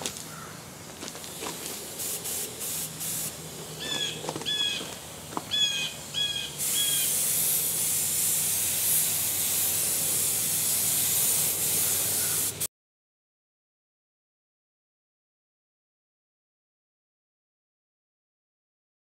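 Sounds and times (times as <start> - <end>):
paint spray gun hissing: 0.2 - 12.7
bird chirping: 3.8 - 4.9, 5.5 - 7.2.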